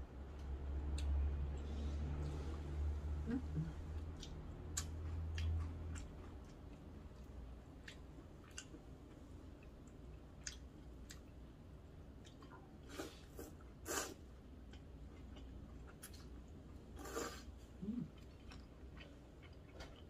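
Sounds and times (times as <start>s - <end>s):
close chewing of noodles: 3.8s - 9.8s.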